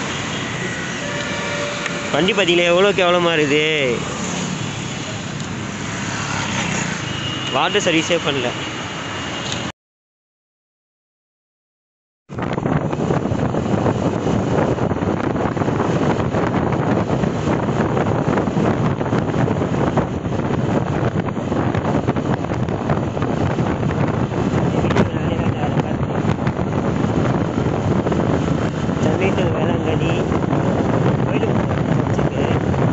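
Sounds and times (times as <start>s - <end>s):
motorcycle engine: 0.0s - 7.6s
road noise: 0.0s - 9.7s, 12.3s - 32.9s
wind rushing over microphone: 0.0s - 9.7s, 12.3s - 32.9s.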